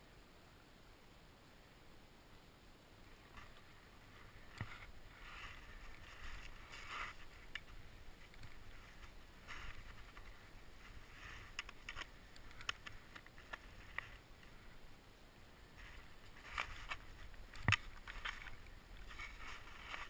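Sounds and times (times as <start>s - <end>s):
skis scraping on snow: 3.7s - 7.5s, 8.2s - 11.6s, 18.0s - 20.0s.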